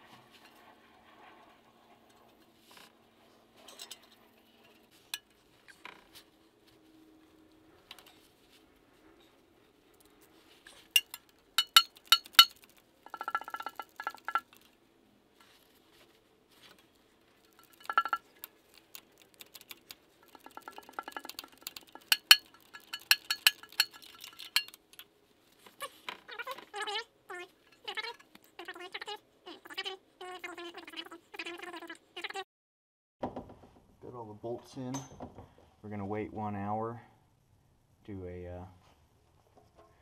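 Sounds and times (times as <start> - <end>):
hand ratchet clicking: 11.0 - 14.2, 18.8 - 24.8.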